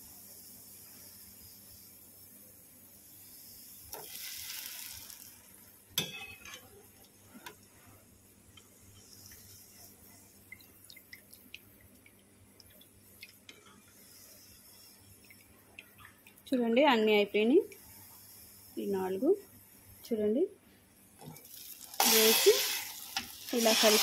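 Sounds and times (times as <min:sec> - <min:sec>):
hot oil crackling: 0:03.3 - 0:06.6, 0:21.2 - 0:24.0.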